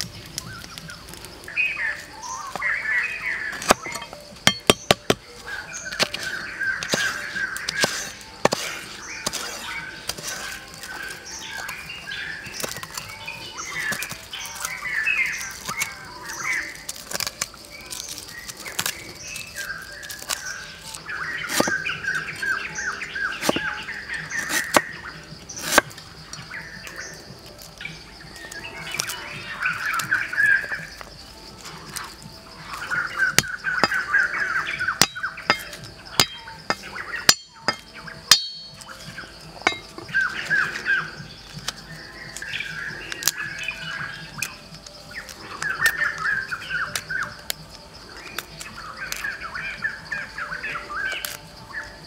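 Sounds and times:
small birds chirping: 0.0 - 52.0
cleaver chopping on wood: 3.6 - 5.3, 5.9 - 10.9, 21.5 - 21.9, 23.4 - 23.8, 24.4 - 24.9, 25.6 - 25.9, 33.4 - 34.0, 34.9 - 38.9, 39.6 - 40.3.

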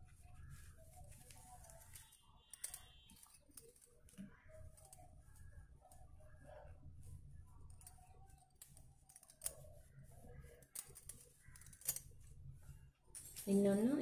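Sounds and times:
hand handling wool pouches: 0.0 - 6.4.

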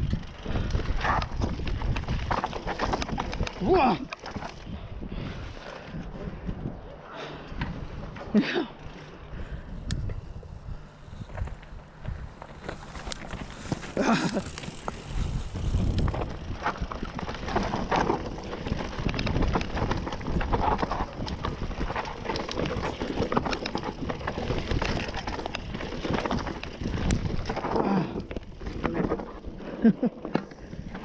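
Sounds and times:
tyres crunching over loose stones: 0.0 - 4.8, 11.3 - 31.0
wind on microphone: 0.0 - 6.9, 9.4 - 27.7
bike rattling: 0.0 - 31.0.

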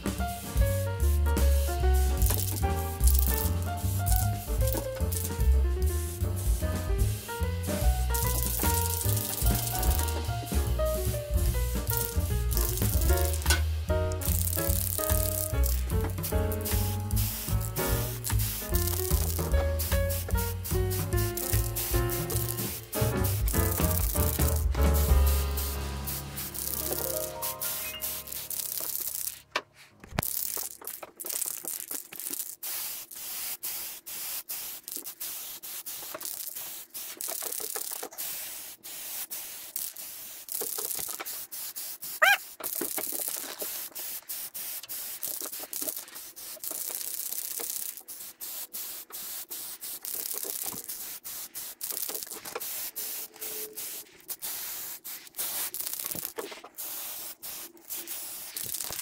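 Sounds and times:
hissing rubbing on a surface: 0.0 - 59.0
sharp sound with rising squeak: 27.4 - 28.5.

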